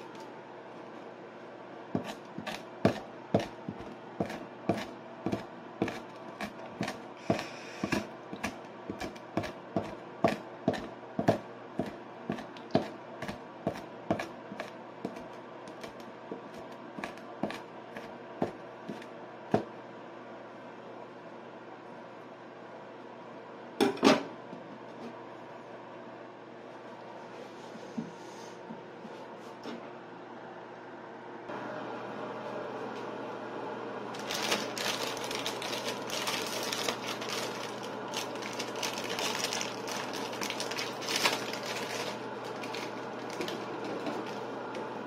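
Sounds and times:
knife chopping on wooden board: 2.0 - 16.4.

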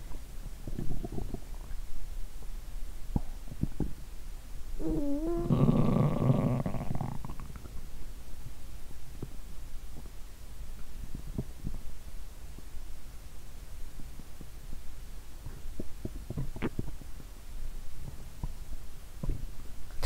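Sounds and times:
stomach gurgling: 0.1 - 1.9, 4.8 - 7.8, 15.5 - 17.1.

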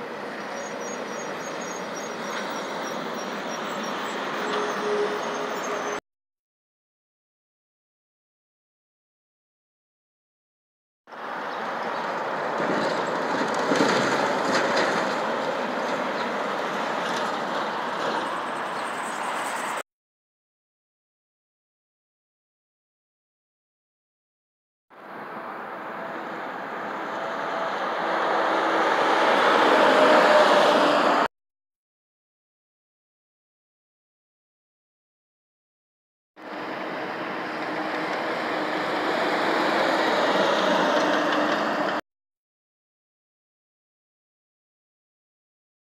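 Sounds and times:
truck engine and tyre noise: 0.0 - 6.0, 11.1 - 19.8, 24.9 - 31.3, 36.4 - 42.0
truck driving past: 25.0 - 31.3, 36.4 - 42.0.

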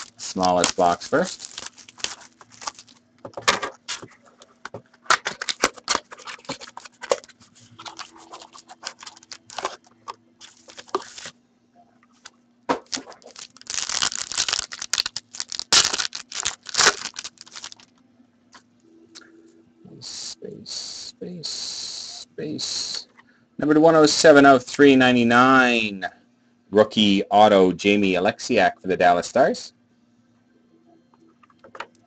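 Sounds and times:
plastic wrapper tearing and crinkling: 0.0 - 3.1, 3.7 - 4.2, 5.1 - 11.3, 12.2 - 17.9.

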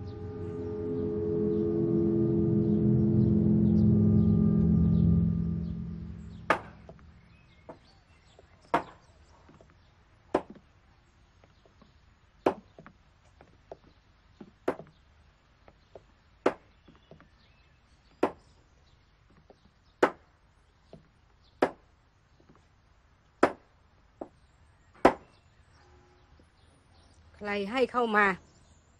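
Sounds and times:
deep gong-like ringing: 0.0 - 7.5
sharp knocks: 6.4 - 7.1, 8.7 - 9.0, 10.4 - 10.6, 12.5 - 12.9, 14.7 - 15.0, 16.4 - 16.7, 18.2 - 18.5, 21.6 - 21.9, 25.0 - 25.3.

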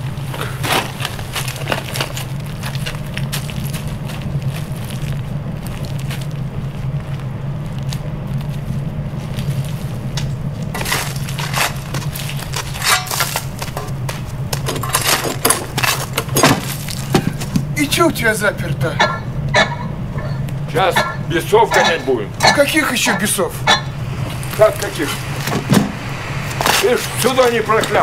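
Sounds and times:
boots crunching over coal: 0.0 - 17.9
steady low hum: 0.0 - 28.0.

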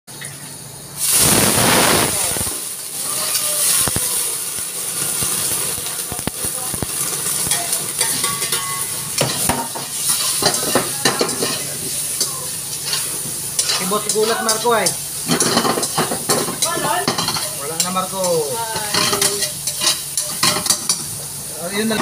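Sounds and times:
food sizzling in a wok: 0.2 - 22.0
utensil knocking and scraping wok: 5.2 - 21.2.

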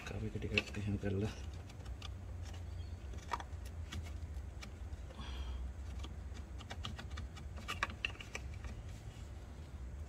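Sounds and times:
steady low hum: 0.0 - 10.0
tools and parts clicking: 5.8 - 8.8.

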